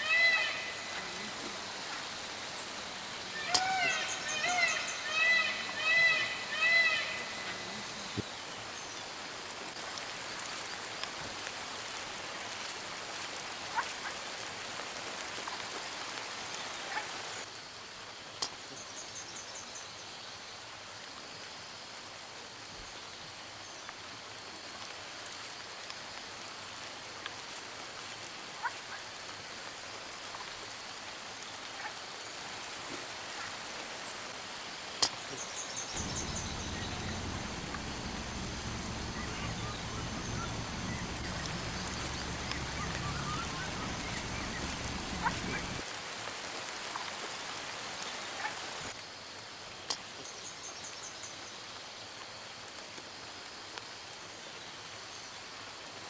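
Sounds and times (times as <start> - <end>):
rain hissing: 0.0 - 18.8, 23.3 - 50.1
low rumble: 36.0 - 45.8.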